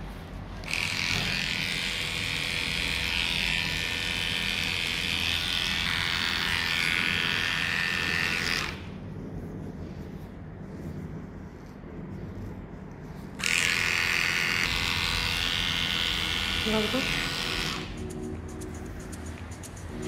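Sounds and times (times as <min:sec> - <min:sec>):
electric clipper motor whine: 0:00.6 - 0:08.9, 0:13.4 - 0:18.0.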